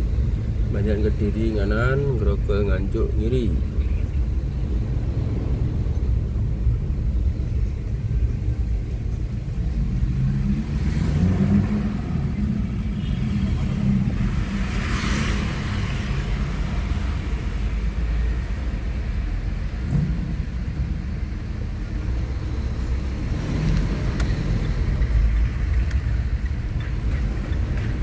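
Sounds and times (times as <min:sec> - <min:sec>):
car engine and road rumble: 0:00.0 - 0:28.0
vehicle passing whoosh: 0:09.7 - 0:18.0.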